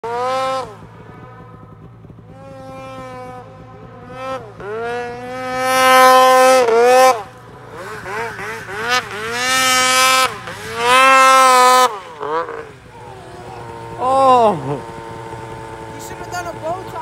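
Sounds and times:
snowmobile engine revving: 0:00.0 - 0:17.0.

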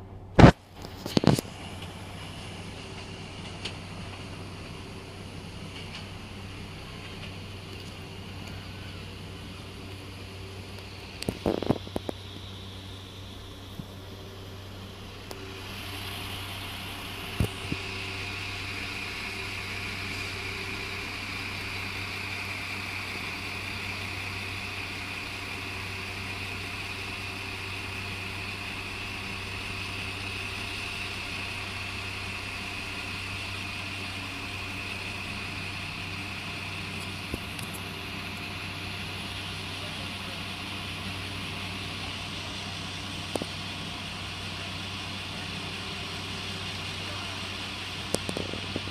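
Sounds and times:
diesel train engines humming: 0:00.0 - 0:48.9
high whine: 0:00.0 - 0:48.9.

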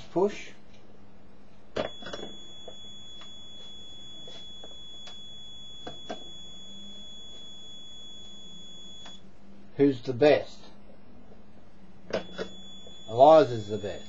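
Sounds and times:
high-pitched buzzer beep: 0:01.8 - 0:09.2, 0:12.1 - 0:14.0.

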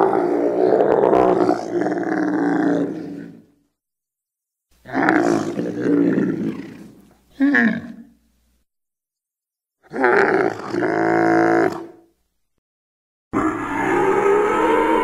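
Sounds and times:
deep animal-like calls: 0:13.4 - 0:15.0.

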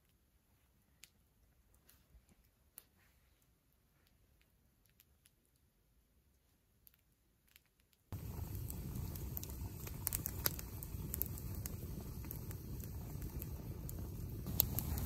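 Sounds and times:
wood fire crackling and popping: 0:08.1 - 0:15.0
fire rushing: 0:08.2 - 0:15.0.

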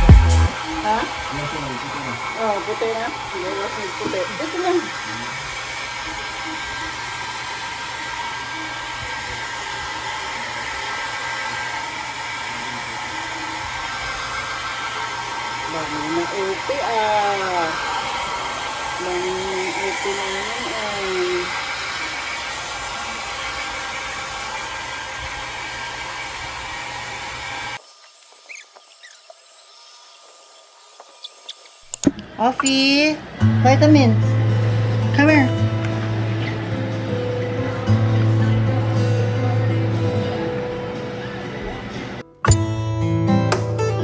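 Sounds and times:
hair dryer blowing: 0:00.0 - 0:28.3.

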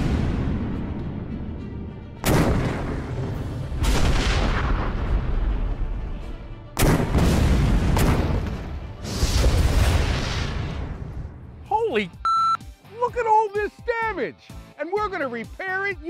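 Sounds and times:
cannon booms: 0:02.2 - 0:05.1.

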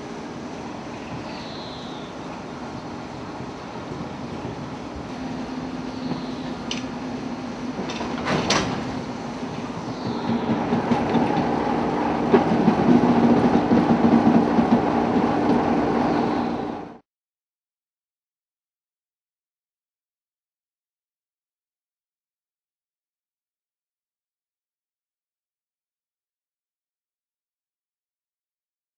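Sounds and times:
diesel locomotive engine hum: 0:00.0 - 0:17.0
train wheels and couplings clanking: 0:02.2 - 0:16.2.

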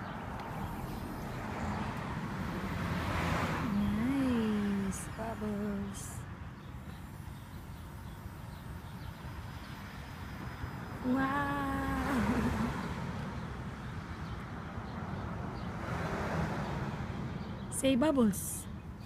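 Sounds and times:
person humming: 0:11.0 - 0:12.8.

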